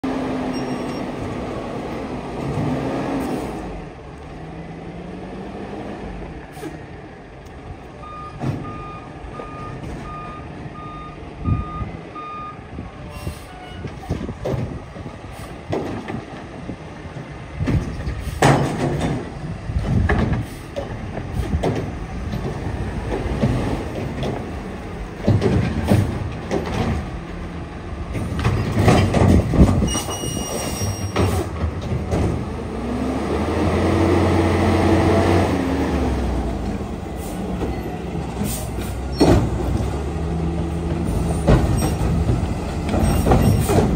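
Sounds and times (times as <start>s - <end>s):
garbage truck running: 0.0s - 43.9s
metal clanks and bangs: 17.6s - 22.6s, 25.2s - 27.2s, 28.1s - 32.4s, 41.0s - 43.9s.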